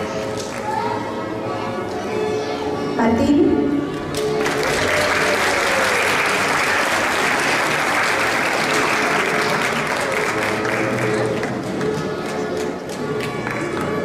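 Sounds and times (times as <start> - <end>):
audience applauding: 4.1 - 14.0.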